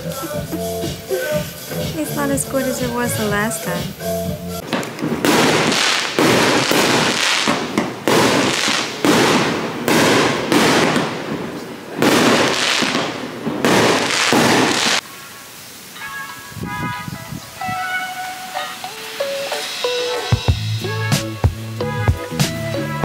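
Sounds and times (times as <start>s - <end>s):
fireworks bangs: 4.6s - 17.6s.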